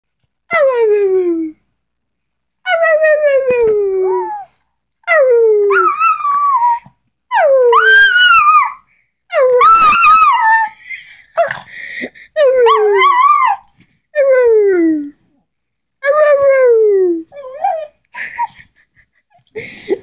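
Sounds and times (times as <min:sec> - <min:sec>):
small dog howling: 0:05.6 - 0:08.8, 0:09.4 - 0:10.7, 0:12.6 - 0:13.6.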